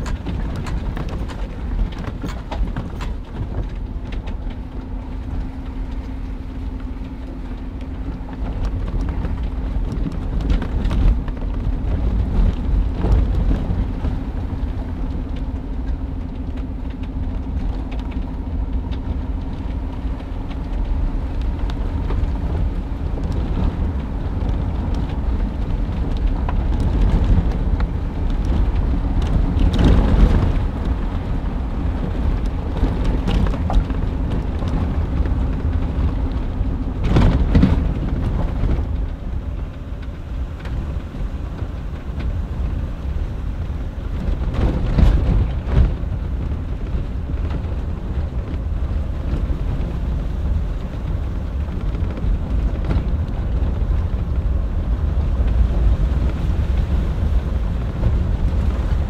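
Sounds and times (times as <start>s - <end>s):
knocks and rattles: 0.0s - 43.2s
engine and road rumble: 0.0s - 59.0s
rain on glass: 0.0s - 59.0s
windshield wipers: 0.0s - 59.0s.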